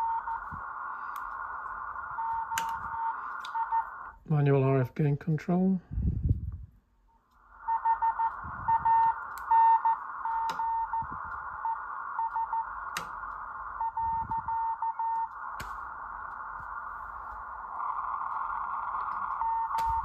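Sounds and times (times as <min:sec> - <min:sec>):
morse code tone: 0:00.0 - 0:00.4, 0:02.0 - 0:04.0, 0:07.6 - 0:13.0, 0:13.7 - 0:16.5, 0:17.2 - 0:20.0
radio band hiss: 0:00.0 - 0:04.8, 0:07.3 - 0:20.0
sharp clicks: 0:00.2 - 0:04.2, 0:07.6 - 0:20.0.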